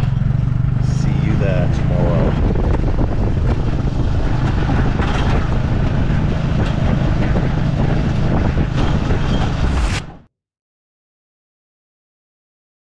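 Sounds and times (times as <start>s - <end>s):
motorbike engine humming: 0.0s - 9.8s
carriage rattling and knocking: 2.6s - 9.6s.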